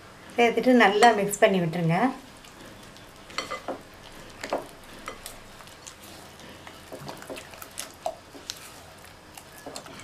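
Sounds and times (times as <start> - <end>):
spatula stirring in glass bowl: 2.4 - 10.0.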